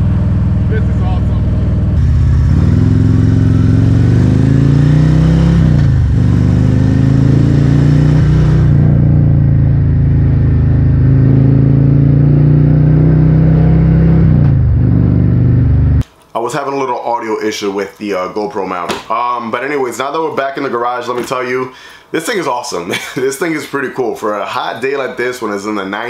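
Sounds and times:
motorcycle engine accelerating: 0.0s - 16.0s.

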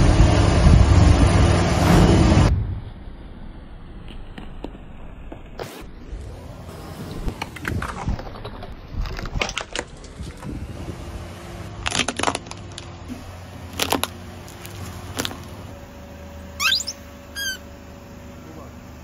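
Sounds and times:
objects cracking under tyres: 7.3s - 10.5s, 11.8s - 15.7s
car engine running: 10.3s - 19.0s
short rising squeaks: 16.6s - 17.7s.

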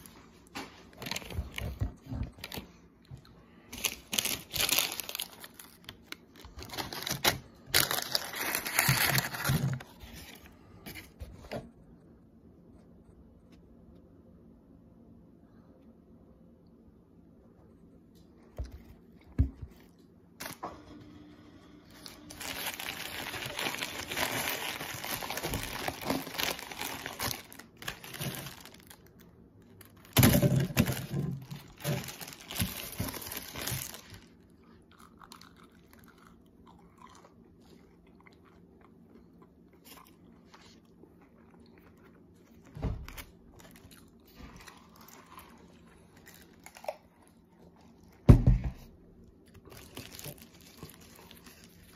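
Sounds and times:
paper wrapper crinkling: 0.8s - 2.8s, 3.7s - 11.2s, 22.0s - 34.4s, 49.5s - 51.9s.

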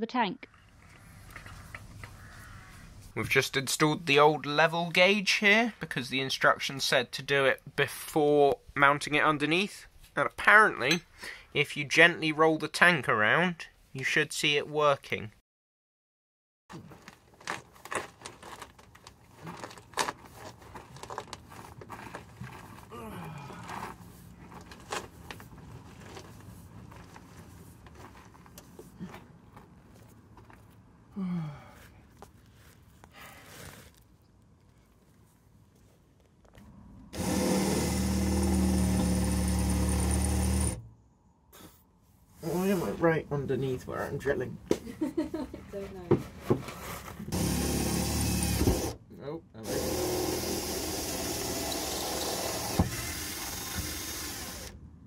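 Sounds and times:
scuffing and handling noise: 16.7s - 22.9s, 23.6s - 31.0s, 31.8s - 36.6s
cordless drill boring sheet metal: 37.2s - 40.8s, 49.6s - 54.8s.

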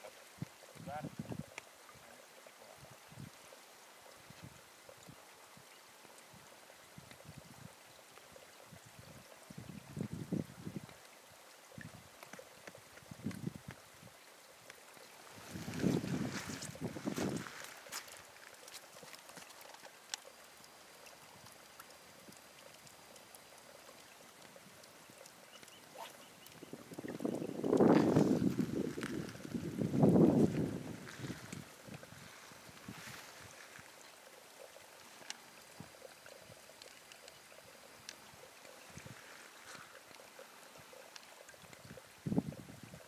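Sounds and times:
faint outdoor hiss: 0.0s - 43.0s
faint river water flowing: 0.0s - 43.0s
small ticks: 1.5s - 2.7s, 10.8s - 15.2s, 15.8s - 29.6s, 33.1s - 42.1s.

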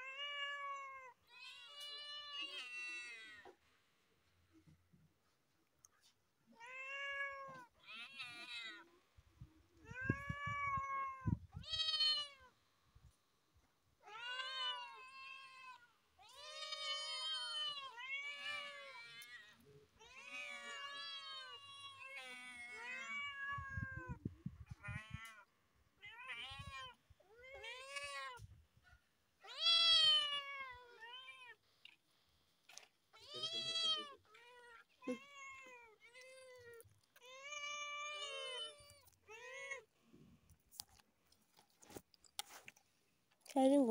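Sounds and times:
kittens meowing: 9.8s - 12.5s, 14.1s - 25.4s, 33.2s - 39.9s.

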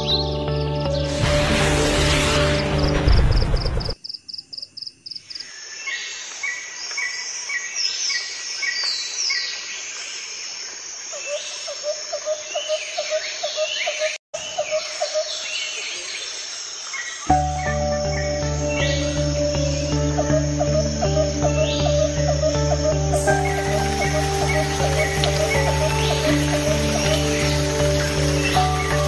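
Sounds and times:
birds chirping: 11.3s - 29.0s.

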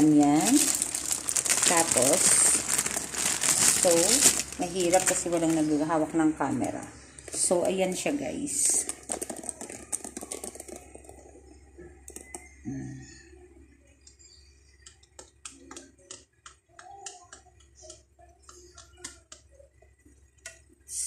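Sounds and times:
wooden spatula tapping noodles: 8.9s - 11.2s.

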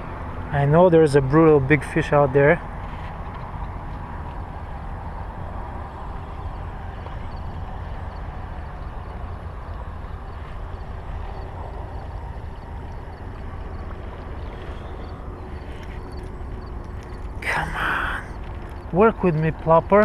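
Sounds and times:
highway traffic rumble: 0.0s - 20.0s.

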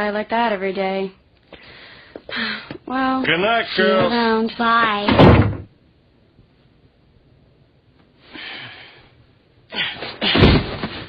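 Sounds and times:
man breathing: 1.5s - 2.8s, 8.2s - 10.2s
thud: 5.1s - 5.7s, 10.2s - 11.0s.

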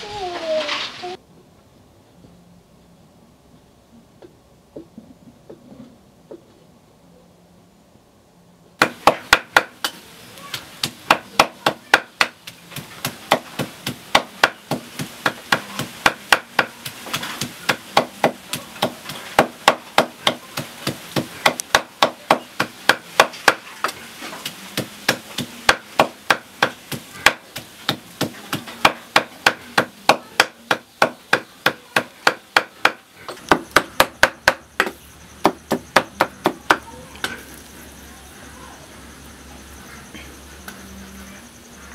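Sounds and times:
cleaver chopping on wooden block: 8.8s - 10.0s, 10.8s - 24.0s, 24.8s - 36.8s.

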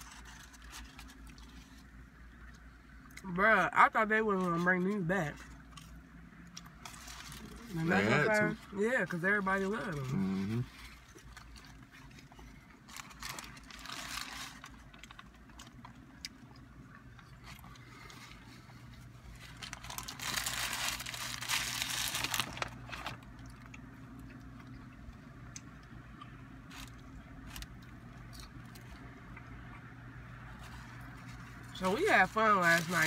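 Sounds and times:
paper wrapper crinkling: 0.0s - 1.8s, 6.6s - 8.2s, 9.8s - 16.1s, 17.4s - 23.7s, 26.7s - 29.0s, 30.6s - 33.0s
low steady hum: 0.0s - 33.0s
person chewing: 10.0s - 13.8s, 14.7s - 20.5s.

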